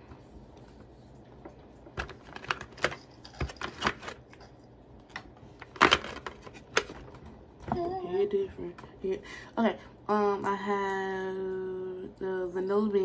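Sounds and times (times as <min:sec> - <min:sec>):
plastic tubes clicking and clattering: 0:02.0 - 0:07.8.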